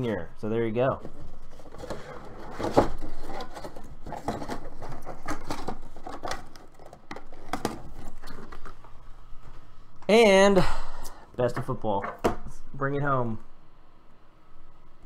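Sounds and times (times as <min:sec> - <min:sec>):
plastic case and cardboard rustling: 0:00.8 - 0:09.0.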